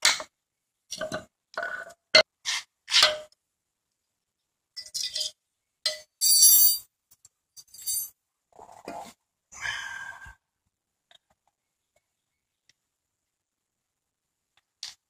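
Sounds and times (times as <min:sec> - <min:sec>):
metal parts clinking: 0:06.2 - 0:06.8, 0:07.6 - 0:08.1.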